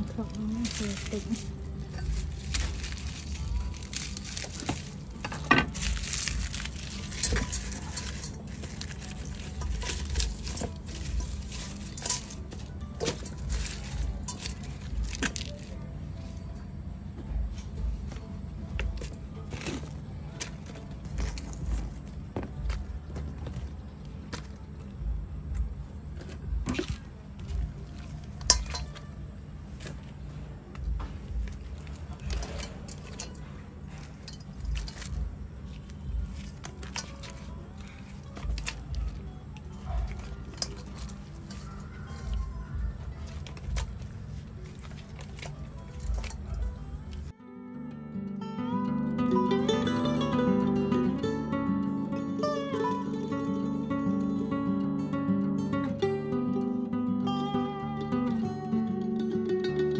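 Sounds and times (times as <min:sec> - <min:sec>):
lemongrass stalks rustling: 0:00.0 - 0:16.6, 0:26.1 - 0:47.3
low steady hum: 0:00.0 - 0:59.9
clinks against metal pot: 0:07.0 - 0:15.5, 0:28.4 - 0:29.0.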